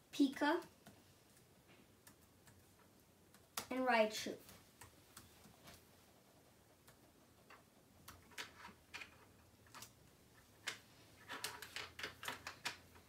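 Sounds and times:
laptop keyboard typing: 0.6s - 3.8s, 6.6s - 13.0s.

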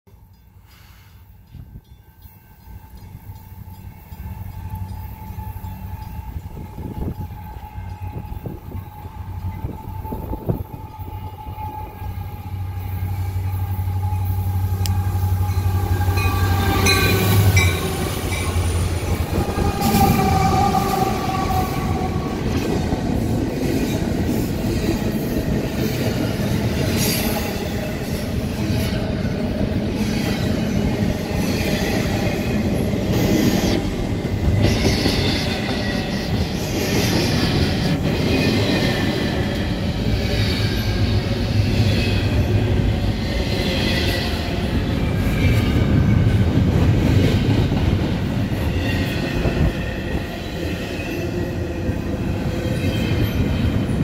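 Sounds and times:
diesel locomotive engines rumbling: 0.1s - 54.0s
train wheel noise and squeal: 0.1s - 54.0s
train horn: 2.7s - 23.2s.

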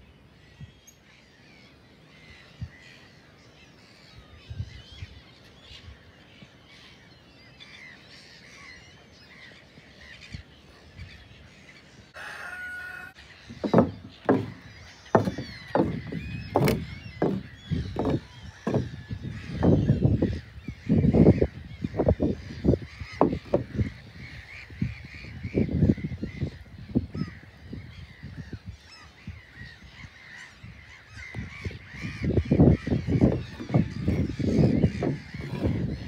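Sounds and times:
flock of birds calling: 0.0s - 36.0s
wind buffeting microphone: 4.1s - 6.2s, 13.1s - 36.0s.

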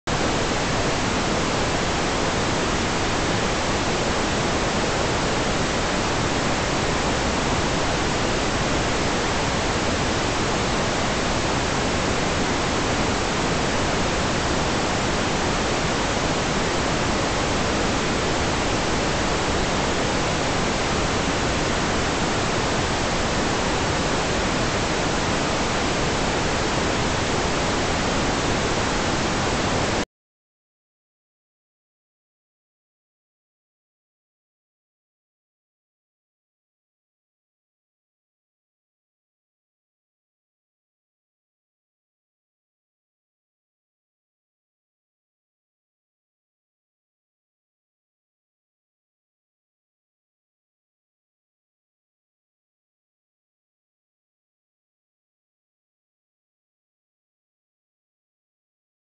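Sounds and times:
steady microphone hiss: 0.1s - 30.0s.

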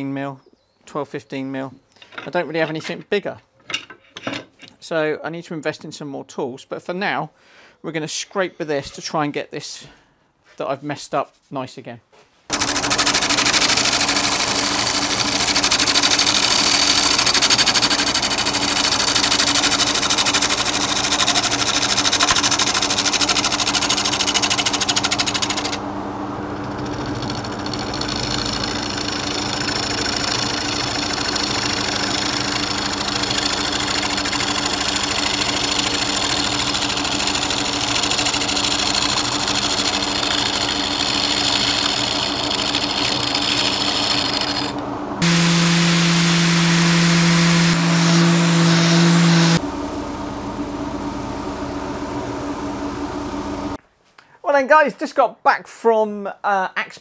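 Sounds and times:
scraper cutting wood: 12.5s - 25.8s, 26.6s - 49.6s
wood lathe motor hum: 12.5s - 49.7s.

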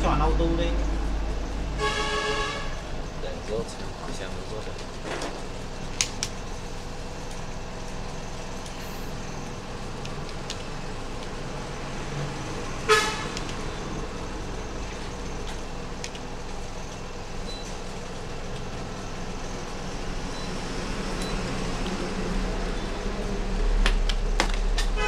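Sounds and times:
vehicle horn toot: 1.8s - 2.8s, 12.9s - 13.4s.

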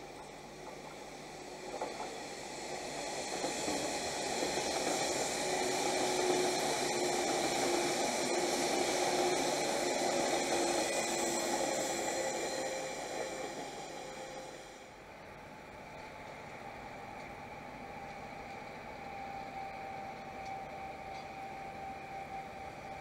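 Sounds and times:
electric train passing: 0.0s - 23.0s.

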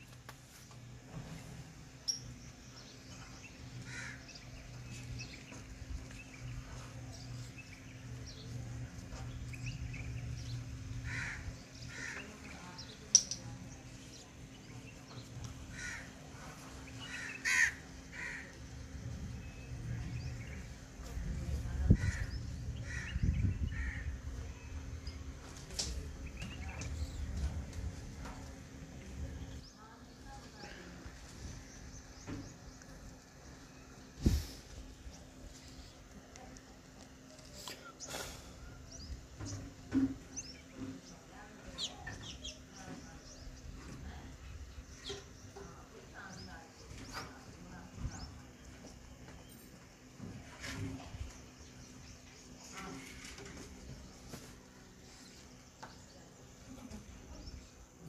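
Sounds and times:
birds calling: 0.0s - 58.0s
steady low hum: 0.0s - 58.0s
crow-like caws: 3.8s - 4.2s, 11.0s - 12.3s, 15.7s - 16.2s, 17.1s - 18.6s, 22.0s - 24.2s
low rumble: 18.6s - 29.6s.

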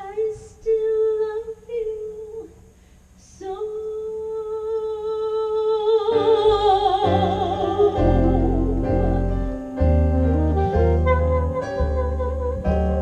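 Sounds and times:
woman singing with vibrato: 0.0s - 13.0s
band playing chords: 6.2s - 13.0s
upright bass: 6.2s - 13.0s.

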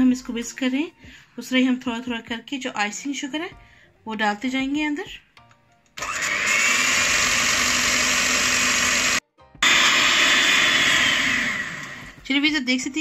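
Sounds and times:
electric hand mixer whining: 6.0s - 12.2s.

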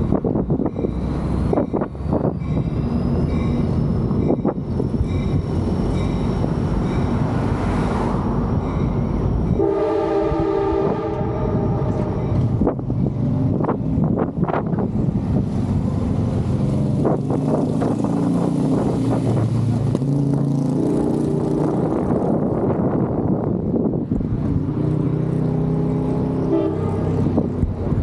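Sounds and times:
traffic rumble: 0.0s - 28.0s
wind: 0.0s - 28.0s
vehicle horn chord: 9.6s - 12.4s, 26.5s - 27.2s.

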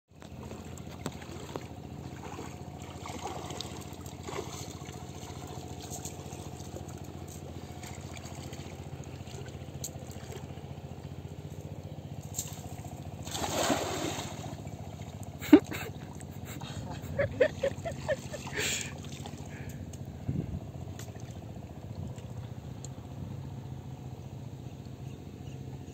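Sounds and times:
water trickling and lapping: 0.1s - 25.9s
steady low hum: 0.2s - 25.9s
cast net splashing onto water: 2.2s - 6.8s, 12.2s - 15.1s.

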